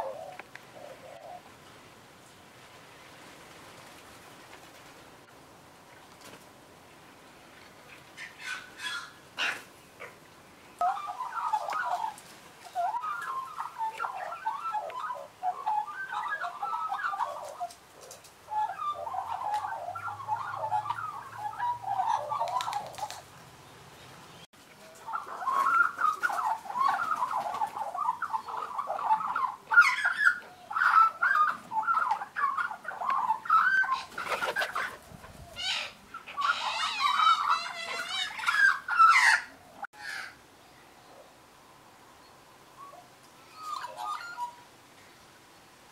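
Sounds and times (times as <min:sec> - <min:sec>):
magpies warbling and chattering: 0:10.8 - 0:17.8, 0:18.5 - 0:23.2, 0:25.0 - 0:40.4, 0:43.5 - 0:44.6.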